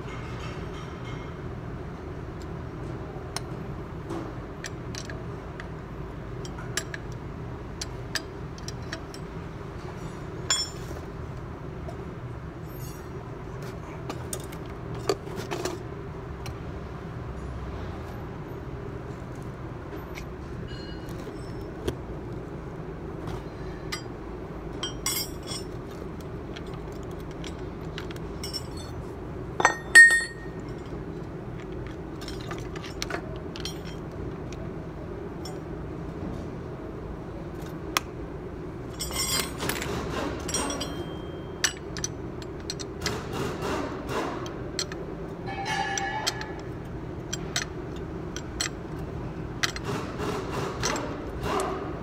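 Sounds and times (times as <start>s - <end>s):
steady low hum: 0.0s - 52.0s
metal tools clinking and clanking: 7.8s - 11.0s, 12.6s - 13.2s, 20.0s - 22.0s, 24.8s - 34.2s, 38.9s - 43.3s, 44.2s - 51.6s.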